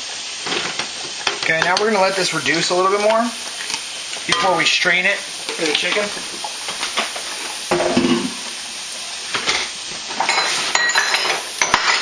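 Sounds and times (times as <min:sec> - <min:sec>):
vegetables sizzling in a pan: 0:00.0 - 0:12.0
metal pots and utensils clinking: 0:00.4 - 0:04.9, 0:05.5 - 0:08.4, 0:09.3 - 0:12.0.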